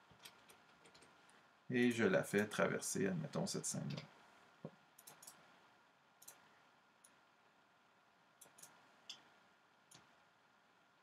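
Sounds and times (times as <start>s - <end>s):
computer mouse clicks: 0.2s - 1.4s, 5.0s - 5.5s, 6.2s - 7.2s, 8.4s - 9.3s, 9.9s - 10.1s.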